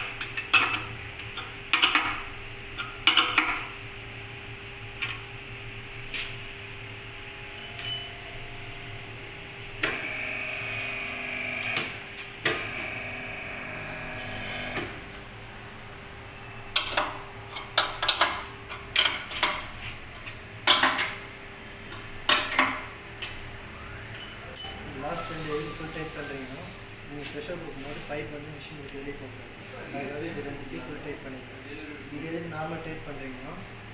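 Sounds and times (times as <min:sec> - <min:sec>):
hydraulic unit whining: 0:09.8 - 0:15.2.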